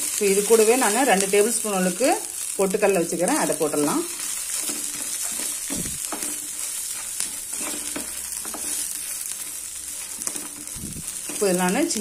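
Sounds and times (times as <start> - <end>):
light sizzle of oil: 0.0 - 12.0
wooden spatula scraping a pan: 3.4 - 12.0.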